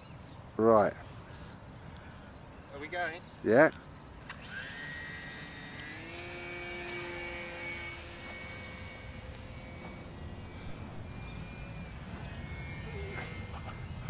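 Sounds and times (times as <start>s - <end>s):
model plane motor whine: 4.2s - 14.0s.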